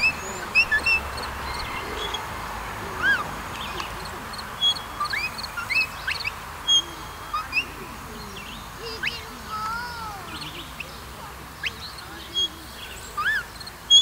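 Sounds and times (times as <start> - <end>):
birds chirping and whistling: 0.0 - 14.0
long falling bird whistle: 4.6 - 7.8.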